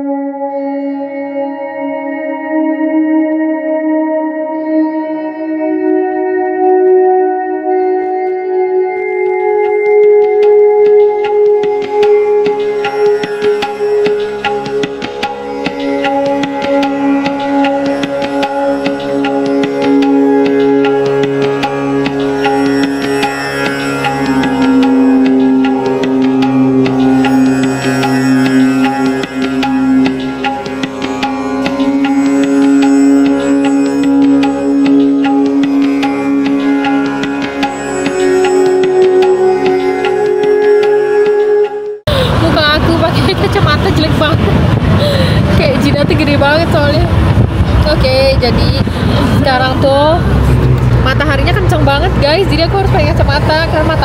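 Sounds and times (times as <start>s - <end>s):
steady held notes: 0.0s - 54.0s.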